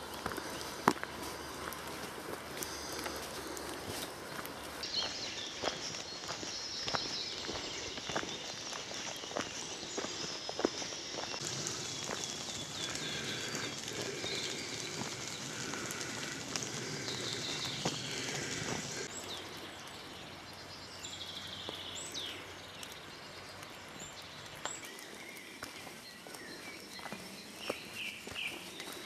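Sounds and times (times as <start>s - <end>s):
footsteps on leafy dirt path: 0.0s - 19.2s, 24.6s - 29.0s
songbirds singing: 0.0s - 29.0s
steady hiss: 10.1s - 19.1s.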